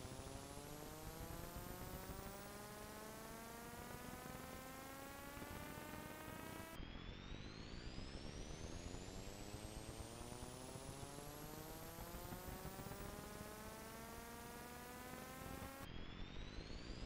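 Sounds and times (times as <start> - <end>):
faint buzzing hum: 0.0 - 17.0.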